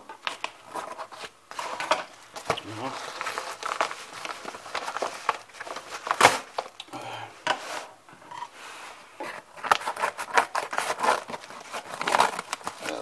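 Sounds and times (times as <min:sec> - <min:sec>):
paper envelope tearing and crinkling: 0:00.2 - 0:06.8, 0:09.3 - 0:13.0.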